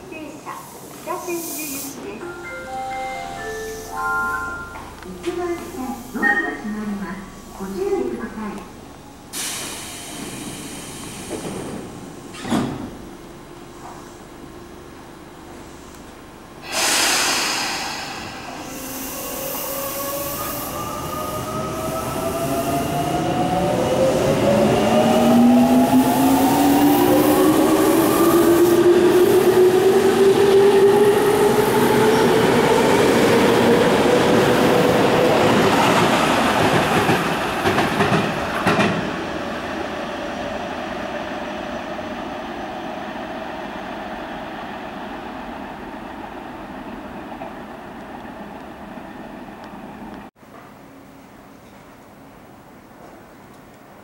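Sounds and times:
air brake hiss: 0.5 - 2.0, 9.3 - 11.7, 16.6 - 20.8
train wheels clacking on rails: 33.4 - 39.2.

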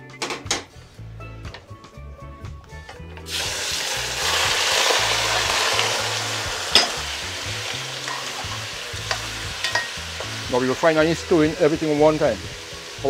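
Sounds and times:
meat sizzling in hot oil: 3.3 - 13.0.

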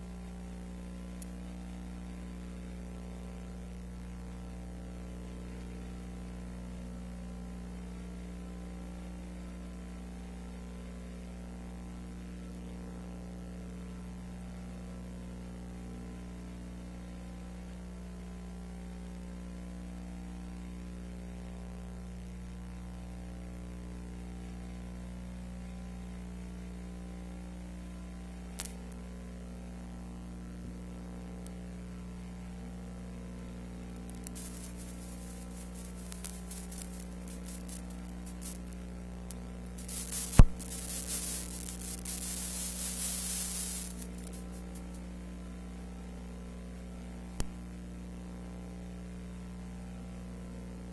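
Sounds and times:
electrical hum: 0.0 - 18.0, 19.9 - 46.0
constant hiss: 27.9 - 29.9, 31.4 - 45.2
sharp loud click: 39.8 - 44.9.

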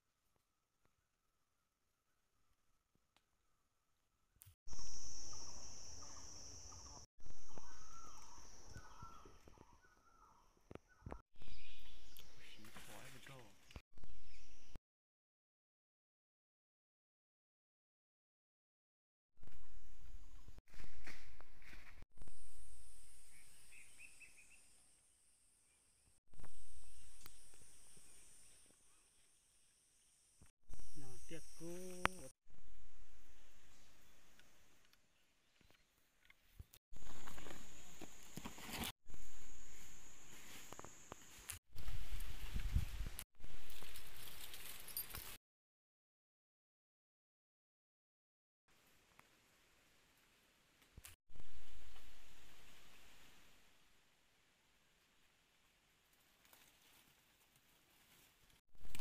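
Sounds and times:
high-pitched insect drone: 4.7 - 9.0, 30.7 - 33.8
bird calling: 4.8 - 12.6.

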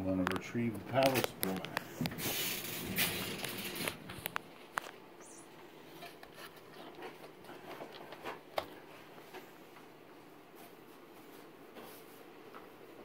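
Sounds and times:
light taps and clicks: 0.2 - 2.2.

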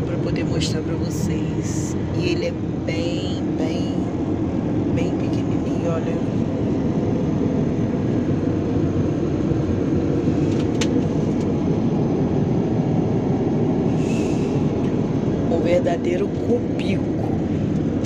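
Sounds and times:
airliner cabin noise: 0.0 - 18.0.

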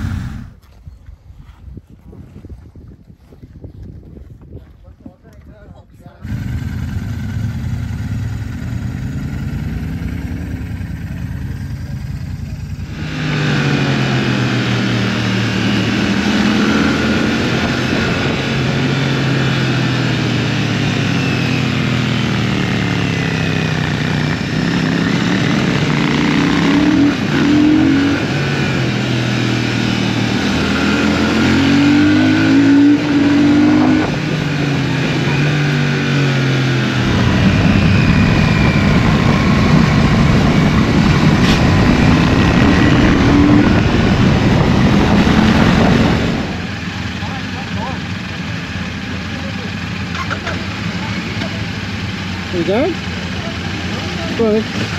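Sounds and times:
motorcycle engine accelerating: 0.0 - 0.6, 6.2 - 54.9
wind noise on microphone: 0.0 - 8.2, 15.3 - 20.6, 23.9 - 46.9.

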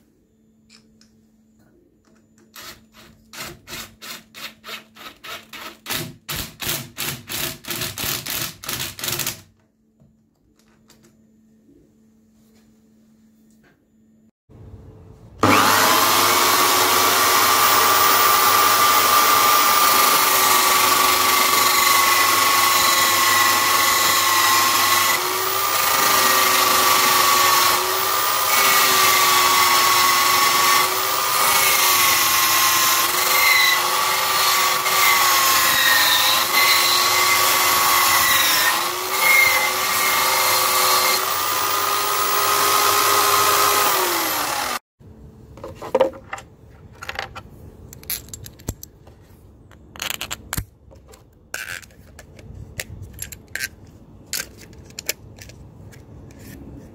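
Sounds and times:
electric drill sanding wood: 15.4 - 44.8.

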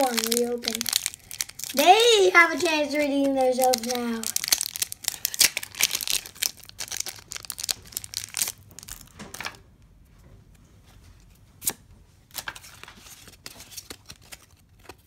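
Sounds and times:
foil wrapper crinkling and tearing: 0.0 - 9.5, 12.3 - 15.0
cards being handled: 0.0 - 9.6, 11.6 - 15.0.

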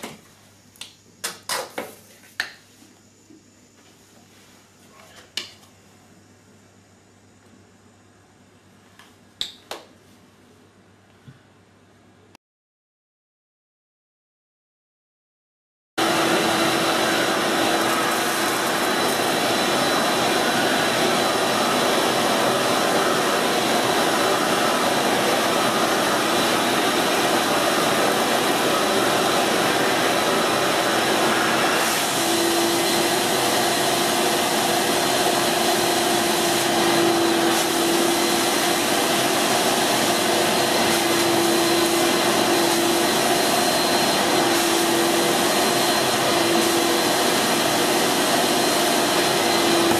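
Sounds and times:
carpet cleaner suction whine: 16.0 - 49.9.

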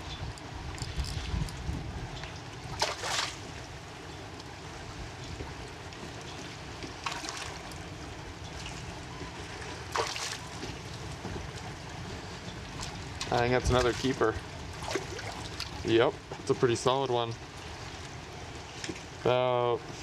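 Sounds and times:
wind on microphone: 0.0 - 2.8
water splashing: 2.3 - 3.8, 6.0 - 12.0, 12.6 - 16.6.

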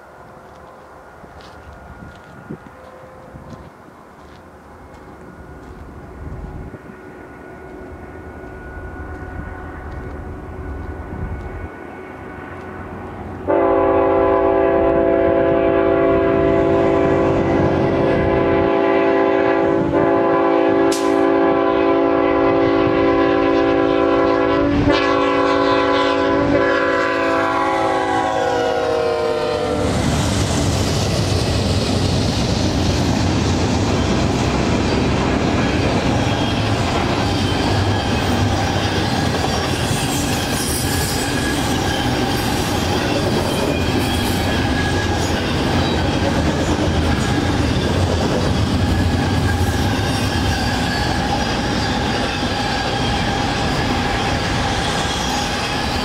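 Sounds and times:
diesel locomotive engine rumble: 0.0 - 56.0
locomotive air horn chord: 13.5 - 29.9
train wheels clickety-clack: 20.0 - 21.7, 29.8 - 56.0.

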